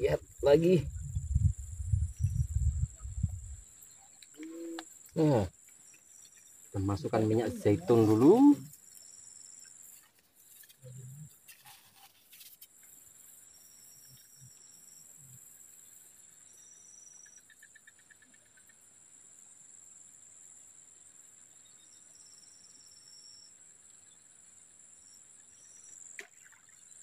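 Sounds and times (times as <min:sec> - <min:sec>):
high insect trills: 0:00.0 - 0:27.0
insects chirring: 0:00.0 - 0:27.0.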